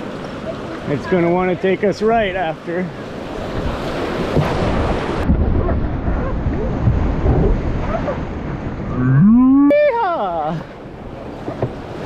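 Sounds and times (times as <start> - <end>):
wind buffeting microphone: 3.2 - 9.7.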